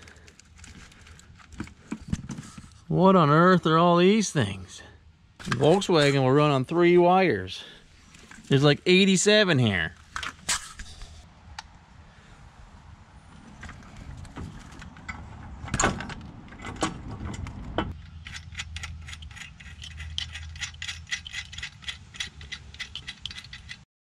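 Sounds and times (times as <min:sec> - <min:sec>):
metal clunks and rattles: 0:13.6 - 0:23.8
ratchet wrench clicking rapidly: 0:18.1 - 0:23.8.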